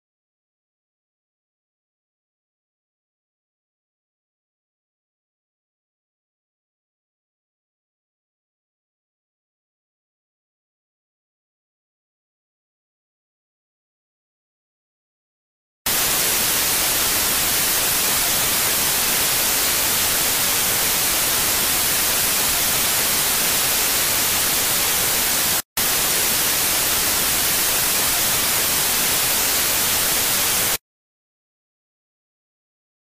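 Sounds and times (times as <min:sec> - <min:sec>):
tv static hiss: 0:15.9 - 0:30.8.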